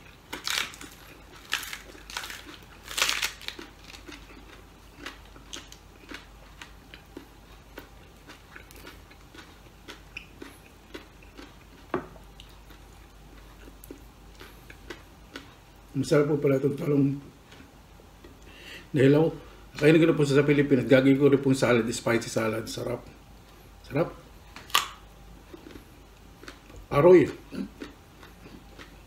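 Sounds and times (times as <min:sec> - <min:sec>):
man chewing and crunching: 0:00.0 - 0:16.0, 0:17.4 - 0:18.5, 0:24.4 - 0:29.0
cabbage leaf crackling: 0:00.3 - 0:04.3.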